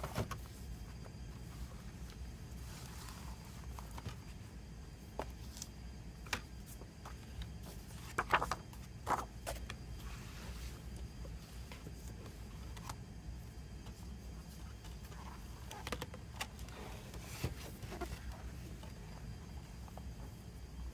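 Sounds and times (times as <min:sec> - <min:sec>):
low steady hum: 0:00.0 - 0:20.9.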